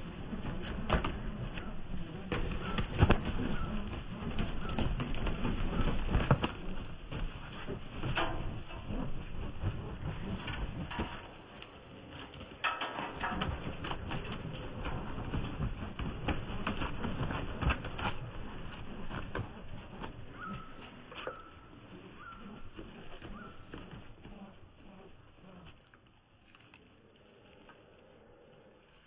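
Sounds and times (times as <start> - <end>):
dove call: 0.0 - 7.6, 18.5 - 25.8
doves flapping wings: 0.0 - 29.0.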